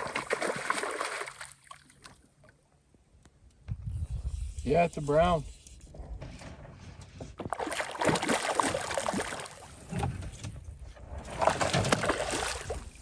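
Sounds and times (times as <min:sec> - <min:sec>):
fish splashing at water surface: 0:07.5 - 0:09.7.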